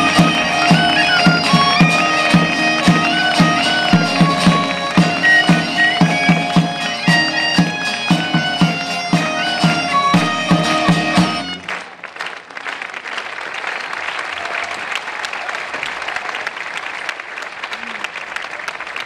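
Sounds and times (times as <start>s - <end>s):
bagpipe melody over drone: 0.0s - 11.7s
drum beating: 0.0s - 11.8s
audience applause: 0.0s - 19.0s.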